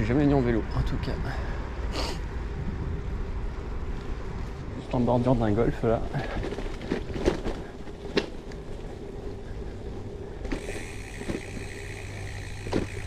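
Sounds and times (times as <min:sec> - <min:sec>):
bike rolling and wind rumble: 0:00.0 - 0:13.0
high whir: 0:10.5 - 0:13.0.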